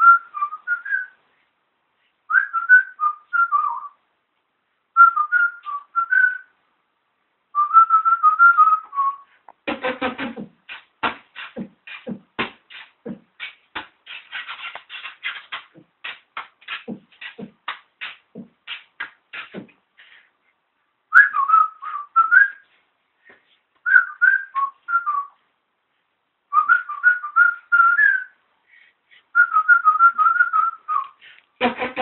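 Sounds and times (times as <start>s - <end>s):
man whistling a tune: 0.0s - 1.2s, 2.3s - 4.0s, 5.0s - 6.5s, 7.6s - 9.3s, 21.1s - 22.7s, 23.8s - 25.4s, 26.5s - 28.4s, 29.4s - 31.2s
beatboxing clicks and thumps: 9.5s - 20.1s, 31.0s - 32.0s.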